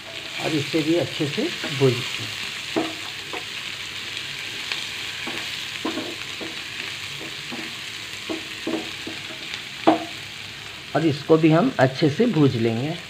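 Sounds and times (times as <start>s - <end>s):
onions sizzling in hot oil: 0.0s - 13.0s
wooden spatula scraping a pan: 4.5s - 9.5s.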